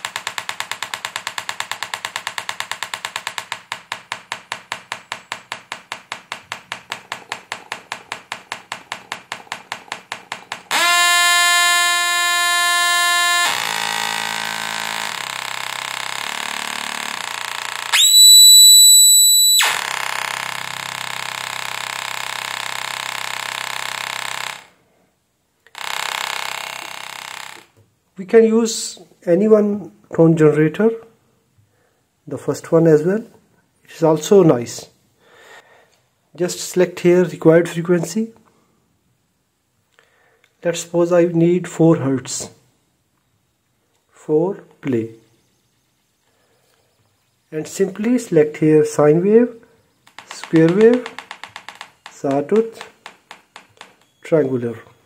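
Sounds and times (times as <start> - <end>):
buzzy tone: 4.7 - 24.7
piercing high tone: 8.6 - 22.8
shifting test tones: 46.9 - 55.0.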